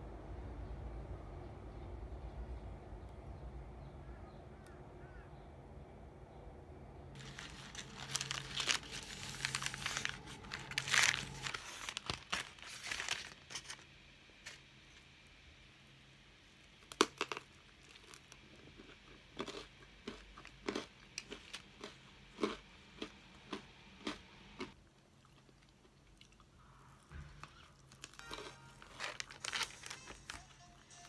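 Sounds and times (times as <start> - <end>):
paper wrapper crinkling: 7.2 - 14.6, 27.8 - 31.0
chewing crusty bread: 16.8 - 31.0.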